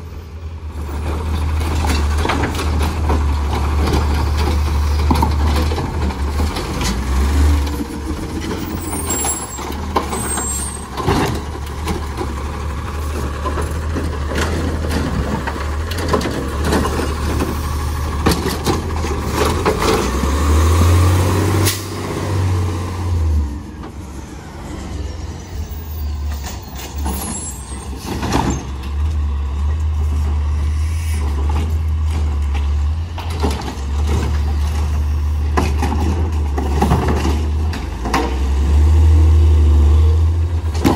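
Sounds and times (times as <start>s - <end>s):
truck engine running: 0.5s - 28.1s.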